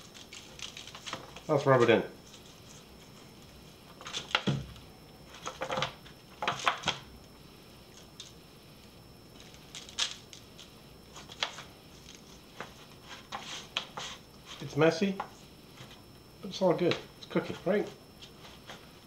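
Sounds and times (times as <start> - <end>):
foil crinkle: 0.0 - 1.6, 9.3 - 14.2.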